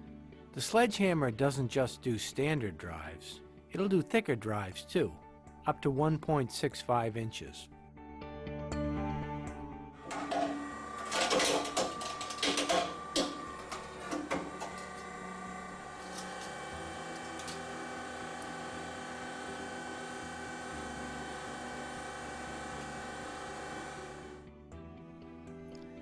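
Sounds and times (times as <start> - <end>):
motor humming steadily: 10.0 - 24.4
hard drive crusher clicks and cracks: 10.1 - 17.8.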